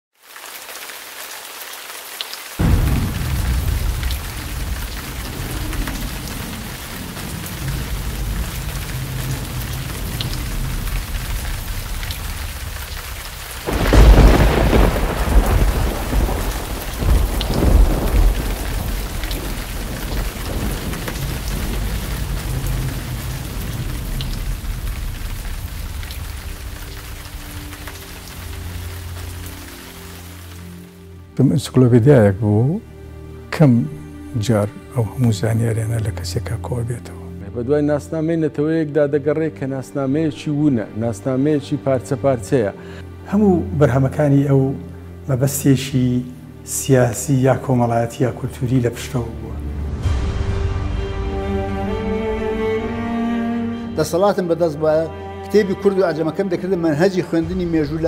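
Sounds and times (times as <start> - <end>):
steady rain: 0.1 - 39.0, 39.6 - 58.0
thunder rumbling: 2.6 - 29.6.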